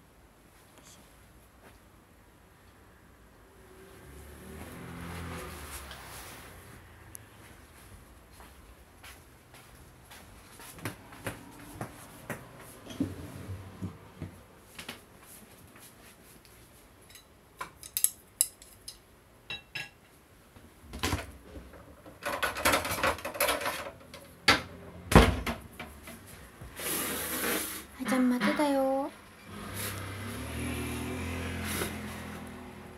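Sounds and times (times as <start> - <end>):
dishes and utensils clattering: 17.1 - 20.1, 22.1 - 24.3.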